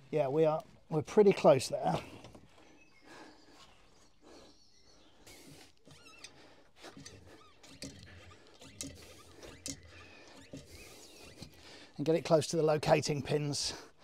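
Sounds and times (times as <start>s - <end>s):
short high squeaks: 5.3s - 11.7s
faint clicks and knocks: 5.7s - 11.6s.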